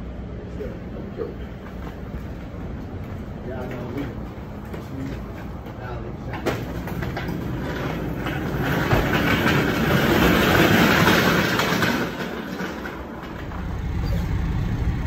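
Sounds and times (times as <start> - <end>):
plastic trays rattling on a dolly: 6.2 - 13.7.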